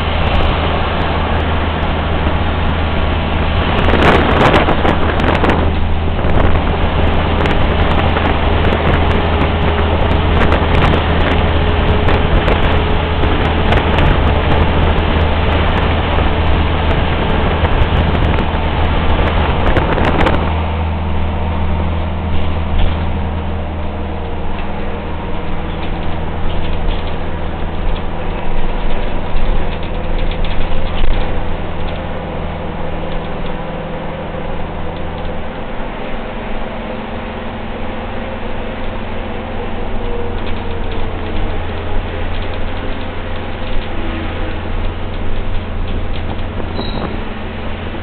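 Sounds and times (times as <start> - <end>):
low vehicle hum: 0.0 - 48.0
tyres rushing on road: 0.0 - 48.0
light rattles and clicks: 22.0 - 23.6, 24.2 - 35.7, 38.4 - 48.0.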